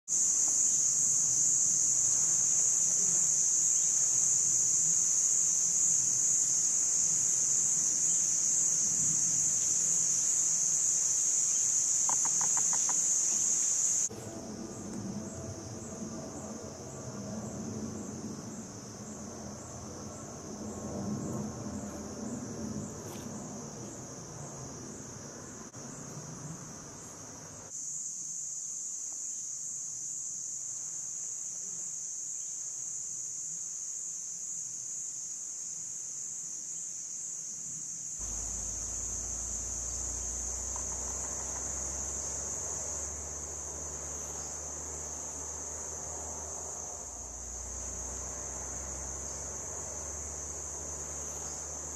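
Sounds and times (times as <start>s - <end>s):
insects shrilling in chorus: 0.1s - 17.3s, 36.6s - 51.9s
low rumble: 14.1s - 21.8s.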